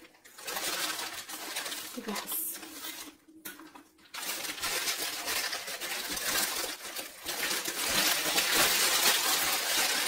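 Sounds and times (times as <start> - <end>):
packaging rustling: 0.0 - 10.0.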